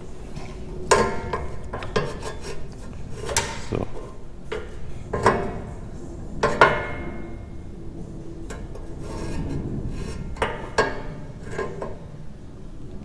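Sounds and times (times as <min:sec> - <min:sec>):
metal clanking: 0:00.0 - 0:07.6
metal scraping: 0:00.0 - 0:12.6.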